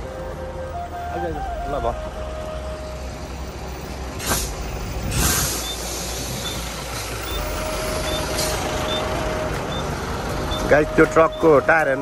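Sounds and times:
truck engine rumbling: 0.0 - 12.0
air-brake hisses: 4.2 - 6.6.

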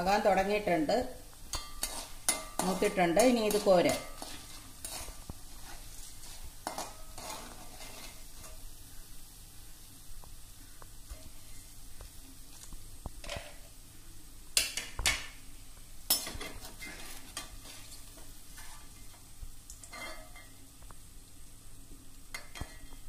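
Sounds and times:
oil sizzling: 0.0 - 23.0
metal skimmer clanking on pan: 1.5 - 5.0, 19.8 - 20.5.

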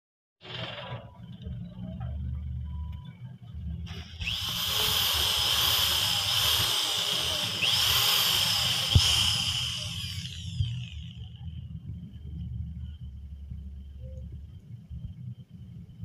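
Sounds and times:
electric drill whining: 3.9 - 11.3.

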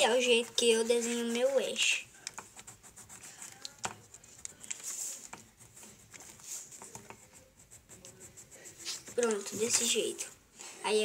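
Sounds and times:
pencil scratching on paper: 0.0 - 10.3
pencil and page taps: 2.2 - 7.4, 8.8 - 10.0.

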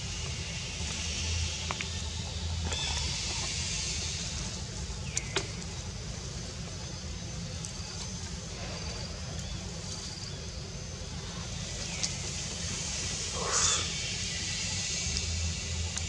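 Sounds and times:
steady high hiss: 0.0 - 16.0.

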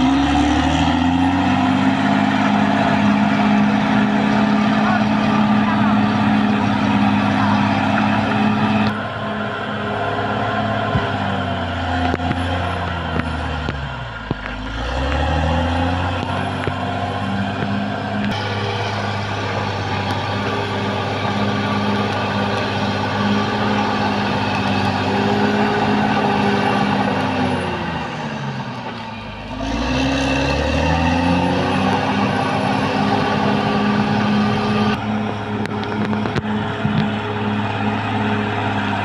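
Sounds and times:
bulldozer diesel engine: 0.0 - 39.0.

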